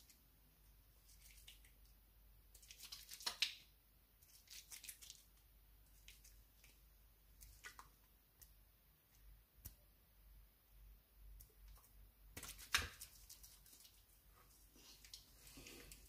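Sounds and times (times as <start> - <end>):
wet squishing of lathered hands: 0.9 - 8.6, 12.4 - 16.0.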